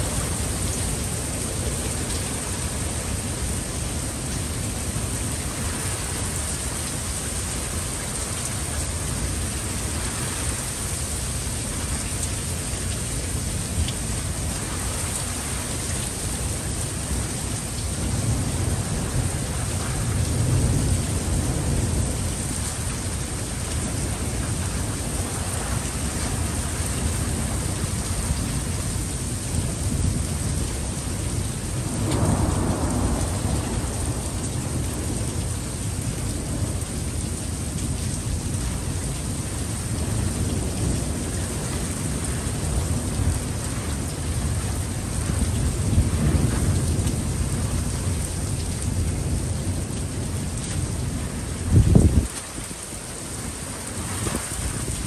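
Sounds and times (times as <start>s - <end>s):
heavy rain hissing: 0.0s - 55.0s
thunder rumbling: 29.8s - 36.9s.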